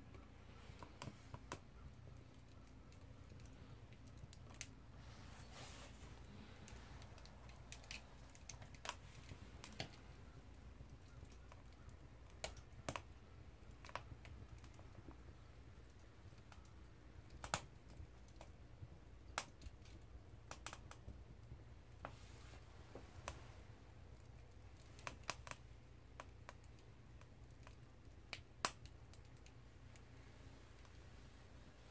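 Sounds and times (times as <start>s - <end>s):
low rumble of stove: 0.0s - 31.9s
wood fire pops and snaps: 0.1s - 5.0s, 6.1s - 31.1s.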